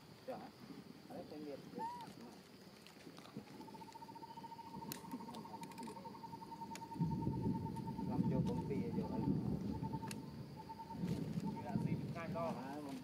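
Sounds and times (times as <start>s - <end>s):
insect trilling: 0.0s - 13.0s
sharp ticks: 3.6s - 10.3s.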